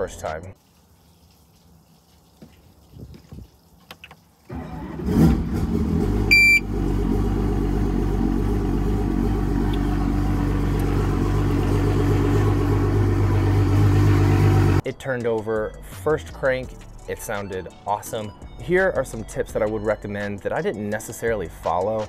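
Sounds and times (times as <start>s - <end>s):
outboard engine starting and idling: 4.5s - 14.8s
short beep: 6.3s - 6.6s.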